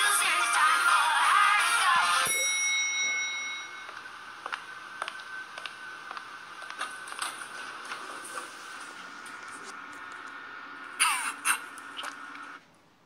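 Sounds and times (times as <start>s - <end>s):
music: 0.0s - 2.4s
faint high hum: 0.0s - 13.0s
elevator chime: 2.2s - 5.6s.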